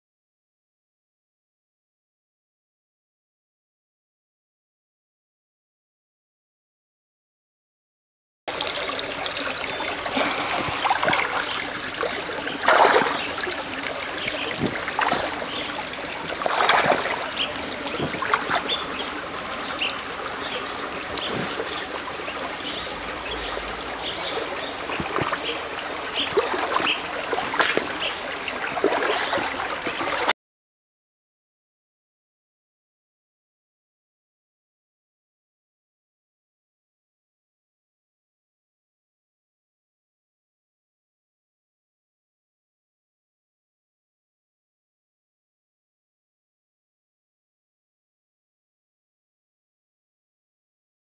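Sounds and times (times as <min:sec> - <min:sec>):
splashing gurgles: 0:08.5 - 0:30.3
stream trickling over stones: 0:08.5 - 0:30.3.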